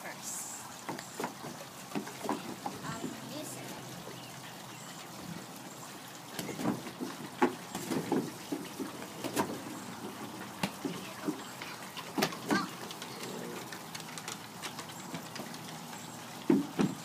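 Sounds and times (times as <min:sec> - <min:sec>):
thumps on a wooden deck: 0:16.4 - 0:17.0.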